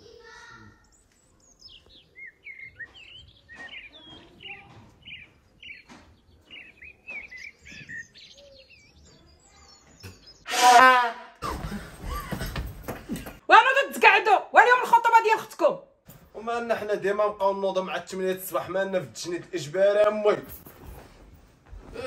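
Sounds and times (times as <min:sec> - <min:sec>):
small birds chirping: 0:00.0 - 0:10.5.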